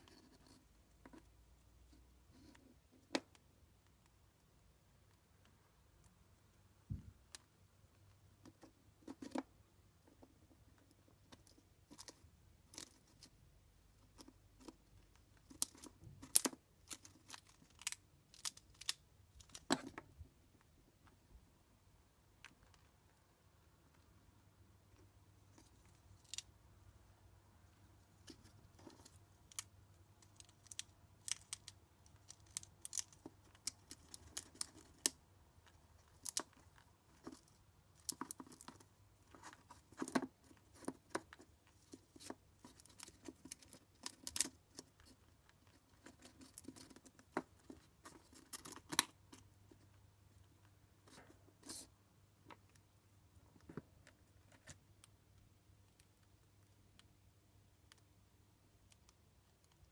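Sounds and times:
chinchilla gnawing nuts: 27.6s - 51.8s.

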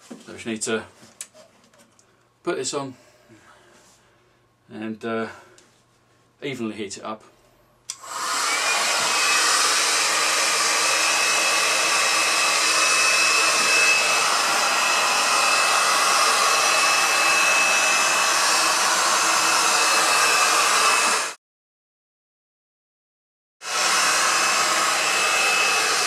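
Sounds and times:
heat gun blowing air: 7.9s - 21.4s, 23.6s - 26.0s.

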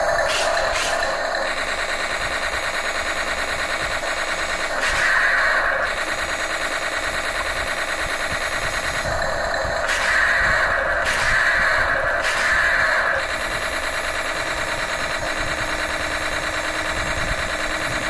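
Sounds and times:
electronic tank engine sound effect: 0.0s - 18.0s.

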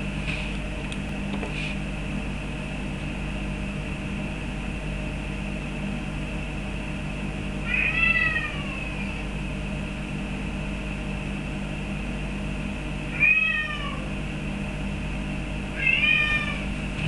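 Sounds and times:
steady low hum: 0.0s - 17.0s
cat meowing: 7.6s - 9.2s, 13.1s - 14.1s, 15.8s - 16.7s.

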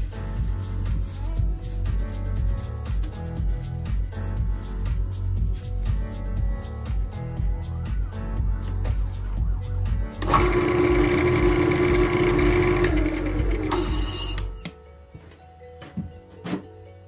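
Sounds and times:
background music with steady beat: 0.0s - 17.0s
lathe motor humming: 10.2s - 14.5s
lathe tool hissing on wood: 10.2s - 14.5s
lathe whine spinning down: 10.2s - 14.5s.

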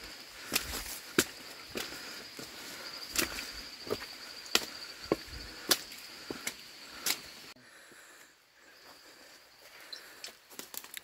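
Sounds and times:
footsteps through undergrowth: 0.0s - 7.4s
insect trill: 0.0s - 11.0s
twigs snapping: 10.5s - 11.0s.

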